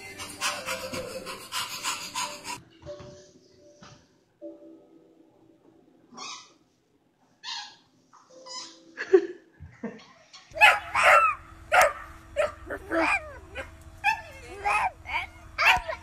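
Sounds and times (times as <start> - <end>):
dog yipping and barking: 10.5 - 16.0.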